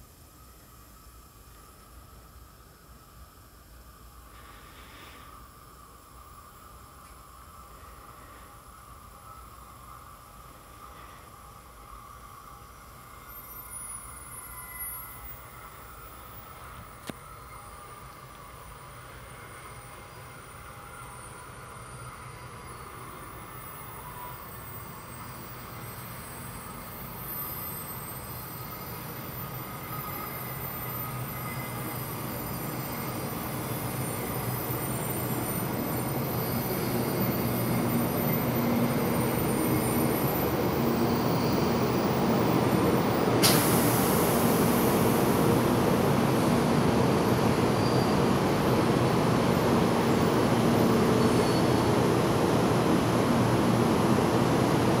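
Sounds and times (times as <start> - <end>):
high hiss: 0.1 - 55.0
train wheels and motors rumbling: 24.2 - 55.0.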